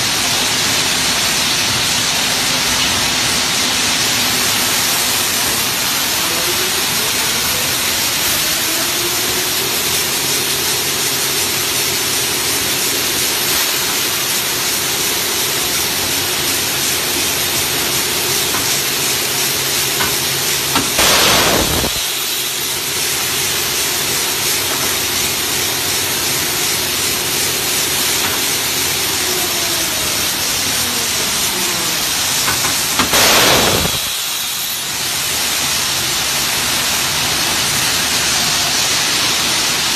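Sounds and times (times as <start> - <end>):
loud hissing bursts: 0.0 - 39.9
machine motor whine: 4.4 - 35.0.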